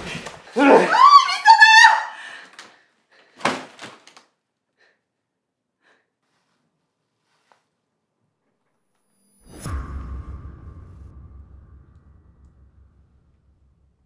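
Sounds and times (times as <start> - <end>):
person shouting high-pitched cry: 0.6 - 2.1.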